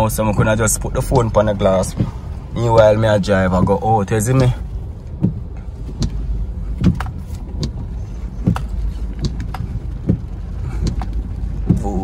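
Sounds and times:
low engine and road rumble: 0:00.0 - 0:12.0
car body knocks and clunks: 0:01.8 - 0:02.8, 0:05.1 - 0:12.0.

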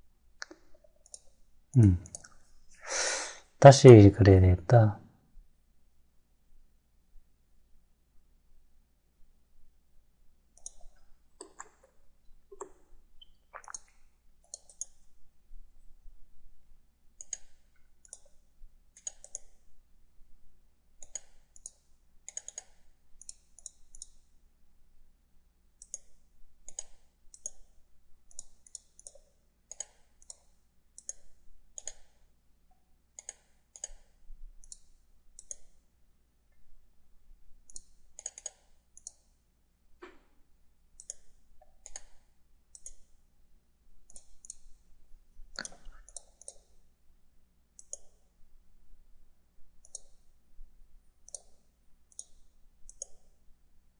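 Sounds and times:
computer mouse buttons clicking: 0:00.4 - 0:01.4, 0:10.6 - 0:12.9, 0:14.5 - 0:15.0, 0:17.2 - 0:18.4, 0:19.0 - 0:19.6, 0:21.0 - 0:24.2, 0:25.8 - 0:27.7, 0:28.3 - 0:32.2, 0:33.2 - 0:35.8, 0:37.7 - 0:39.3, 0:41.0 - 0:43.1, 0:44.0 - 0:44.7, 0:45.6 - 0:46.8, 0:47.8 - 0:48.2, 0:49.8 - 0:50.2, 0:51.2 - 0:53.4.

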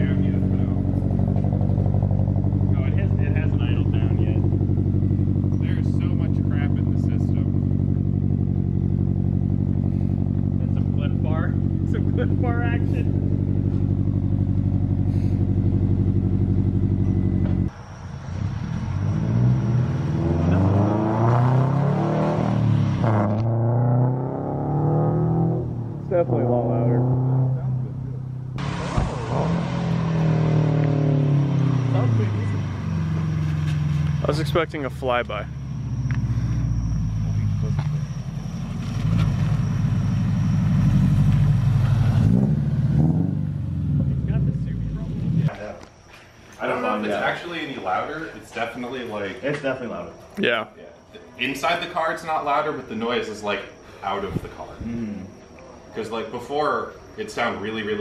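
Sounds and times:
car engine idling: 0:00.0 - 0:17.8, 0:30.0 - 0:50.3
distant engine accelerating: 0:00.0 - 0:45.8.

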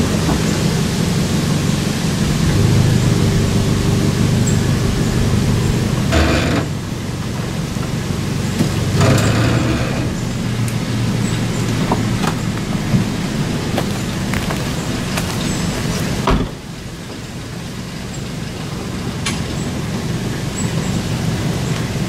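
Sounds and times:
truck engine idling: 0:00.0 - 0:22.0
truck door shutting: 0:15.1 - 0:16.7.

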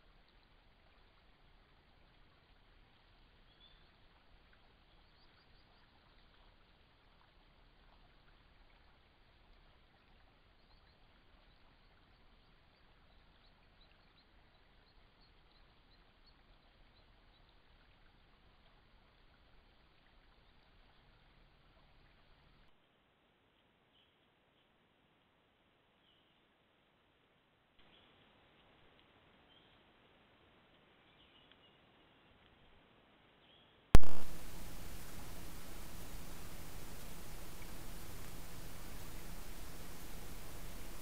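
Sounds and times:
faint microphone hiss: 0:00.0 - 0:41.0
faint high chirps: 0:34.0 - 0:41.0.

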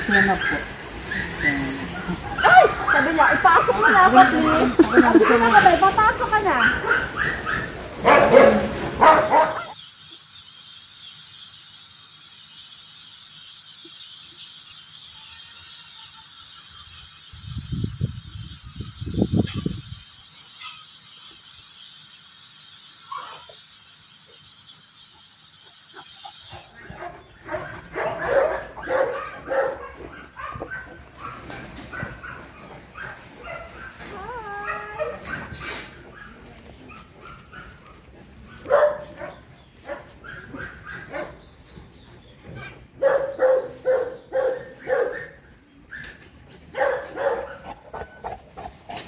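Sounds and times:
large dog barking: 0:00.1 - 0:09.8, 0:26.5 - 0:41.4, 0:43.0 - 0:45.4, 0:46.7 - 0:48.7
steady hiss: 0:09.2 - 0:30.4.

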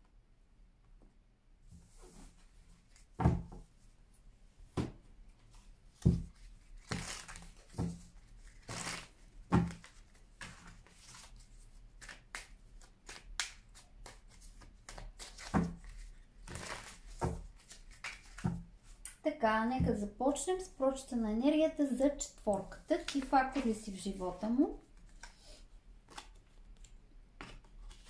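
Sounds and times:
cards shuffling: 0:06.7 - 0:09.1, 0:09.7 - 0:18.5, 0:22.5 - 0:23.9, 0:26.1 - 0:28.0.

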